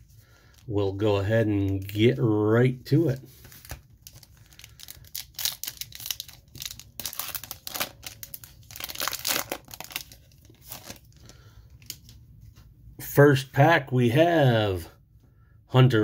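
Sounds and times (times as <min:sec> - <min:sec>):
foil wrapper tearing and crinkling: 0:03.4 - 0:12.0.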